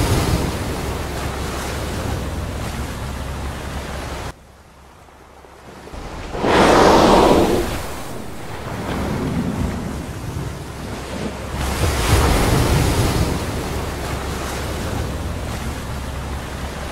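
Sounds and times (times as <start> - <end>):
ocean waves: 0.0 - 16.9
low rumble: 6.0 - 10.0.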